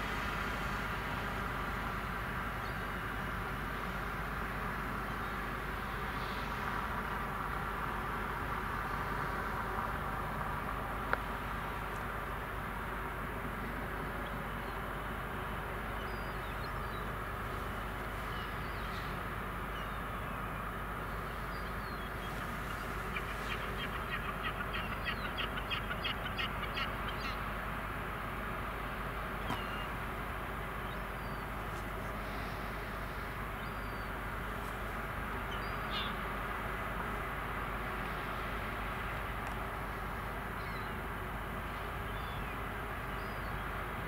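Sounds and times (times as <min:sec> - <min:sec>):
ferry engine rumbling: 0:00.0 - 0:44.0
bird harsh calls: 0:16.0 - 0:27.4, 0:29.4 - 0:30.0, 0:35.4 - 0:36.2
faint bird chirps: 0:29.4 - 0:30.0.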